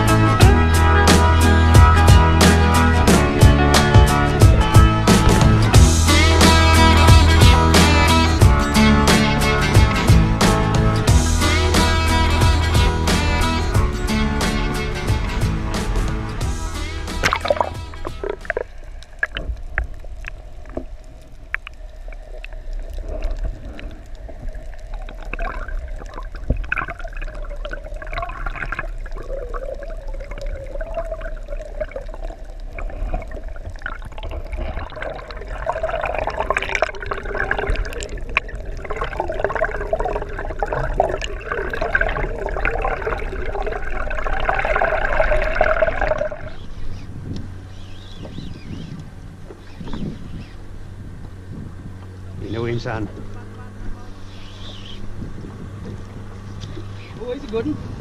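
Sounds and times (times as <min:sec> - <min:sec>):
muffled underwater water: 0:00.0 - 0:58.0
wavering hum: 0:00.0 - 0:58.0
sharp underwater clicks: 0:17.1 - 0:51.4.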